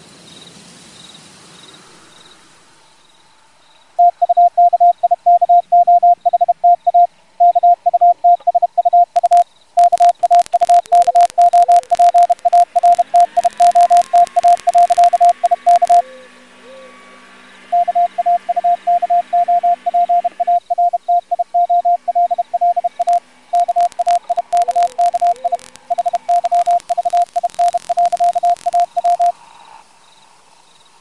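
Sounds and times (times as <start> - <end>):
morse code beeps: 4.0 - 16.0, 17.7 - 29.3
radio static hiss: 4.0 - 16.0, 17.7 - 29.8
low hum: 4.0 - 16.9, 17.7 - 29.3
sharp crackling clicks: 8.4 - 16.0, 17.8 - 29.3.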